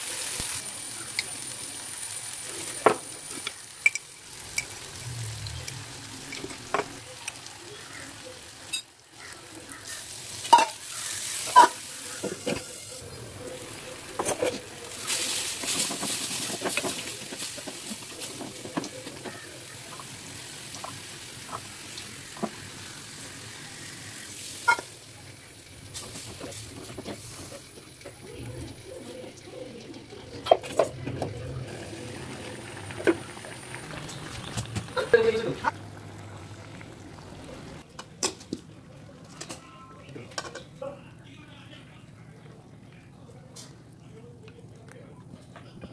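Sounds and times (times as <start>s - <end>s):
utensils clinking on pot: 3.8s - 4.8s, 10.4s - 12.8s
water pouring into pot: 13.0s - 37.8s.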